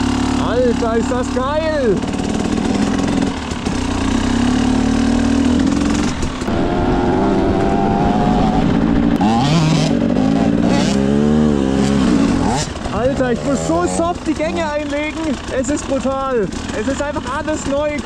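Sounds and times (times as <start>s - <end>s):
two-stroke motorcycle engine: 0.0s - 18.0s.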